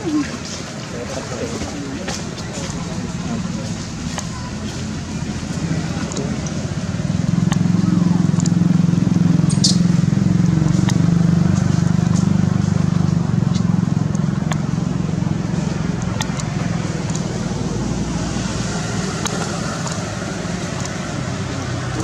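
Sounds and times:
engine humming: 0.0 - 22.0
faint clicks: 16.0 - 17.3, 19.2 - 21.0.

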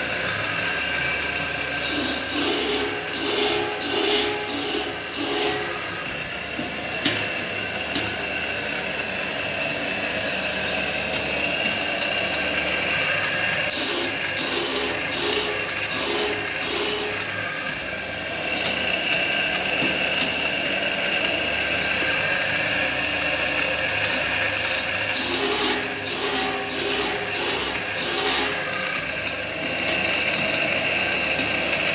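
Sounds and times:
grinding machine whine: 0.0 - 31.9
short grinding strokes: 24.0 - 28.8.

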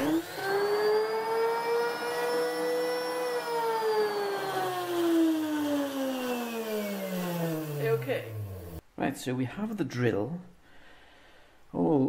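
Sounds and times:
electric drill motor whine: 0.0 - 8.8.

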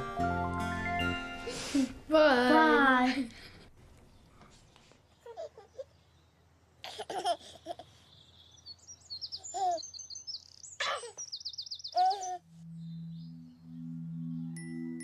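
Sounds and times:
baby giggling and cooing: 5.2 - 6.0, 6.8 - 8.0, 9.4 - 9.8, 12.0 - 12.5
birds chirping and trilling: 5.2 - 6.6, 7.9 - 15.0.

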